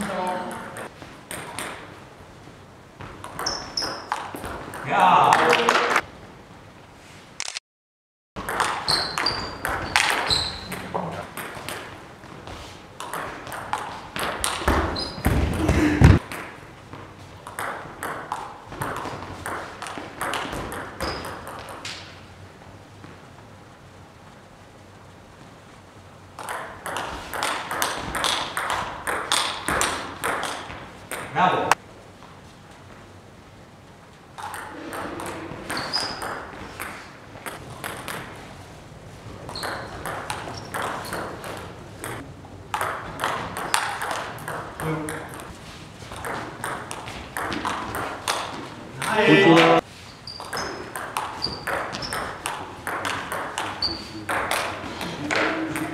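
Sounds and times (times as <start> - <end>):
short high squeaks: 8.8 - 10.9, 35.7 - 36.3, 50.0 - 50.8, 53.8 - 54.2.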